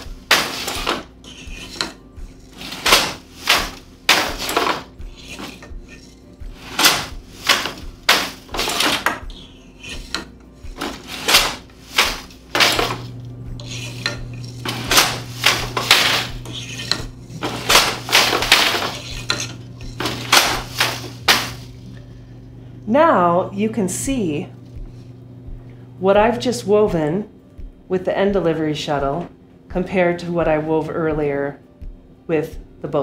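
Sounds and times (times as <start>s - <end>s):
wooden loom clacking: 2.6s - 5.6s, 6.7s - 9.2s, 10.8s - 13.0s, 14.7s - 21.6s.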